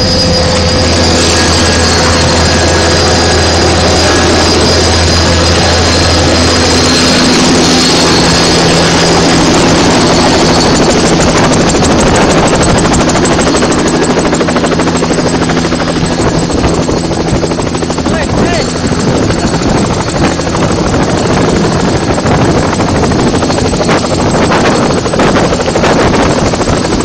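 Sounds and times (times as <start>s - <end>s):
helicopter engines and rotor: 0.0s - 27.0s.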